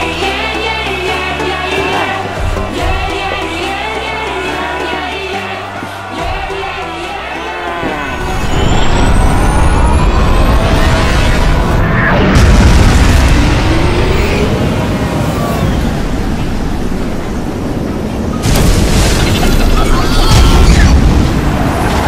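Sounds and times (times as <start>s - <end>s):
background music: 0.0s - 15.5s
loud rumbling with whooshing sweeps: 8.1s - 19.7s.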